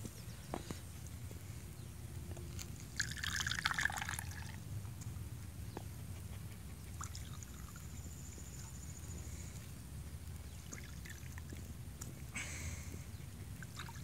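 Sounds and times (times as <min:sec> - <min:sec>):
tea pouring and splashing: 0:03.0 - 0:04.6.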